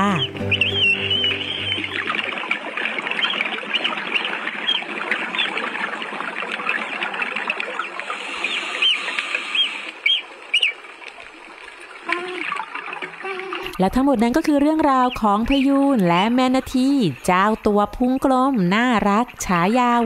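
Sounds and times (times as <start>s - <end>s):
dugongs chirping underwater: 0.0s - 20.0s
crackling underwater noise: 1.2s - 20.0s.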